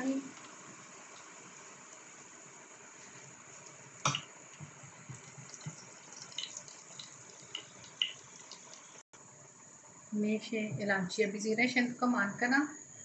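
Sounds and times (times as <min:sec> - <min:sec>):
spices sizzling in oil: 0:00.0 - 0:10.5
small pops and crackles: 0:03.6 - 0:08.9.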